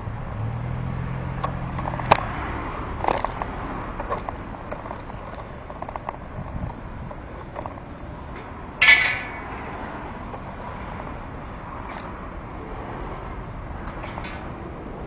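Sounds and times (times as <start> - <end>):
bicycle wind and tyre noise: 0.0 - 15.0
sharp metallic clank: 8.8 - 9.8.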